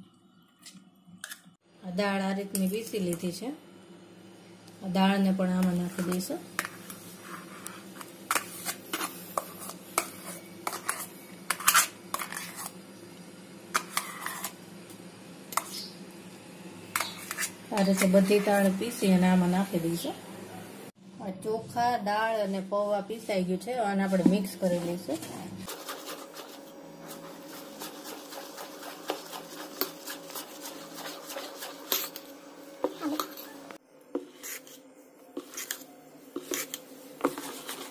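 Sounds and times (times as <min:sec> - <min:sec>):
batter stirred in steel bowl: 0:05.5 - 0:12.8, 0:13.7 - 0:14.6, 0:17.0 - 0:19.0, 0:24.6 - 0:33.6, 0:34.2 - 0:34.8, 0:35.4 - 0:37.9
batter scraped from metal jar: 0:08.3 - 0:12.8, 0:13.8 - 0:14.6, 0:34.2 - 0:34.8.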